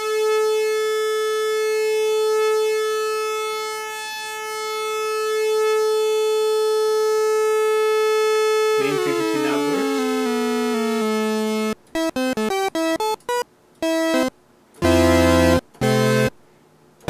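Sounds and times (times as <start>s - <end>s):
buzzy analog synthesizer note: 8.2s - 13.1s, 13.8s - 16.3s.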